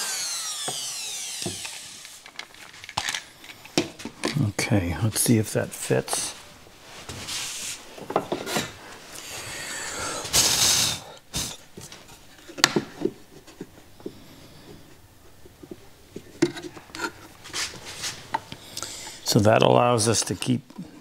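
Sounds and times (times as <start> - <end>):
saw knocking on wooden board: 0.6 - 1.8.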